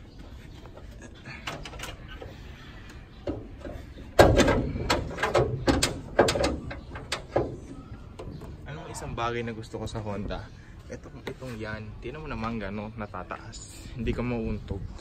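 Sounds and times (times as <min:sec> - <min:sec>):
car hood metal clunks: 0:04.2 - 0:07.6.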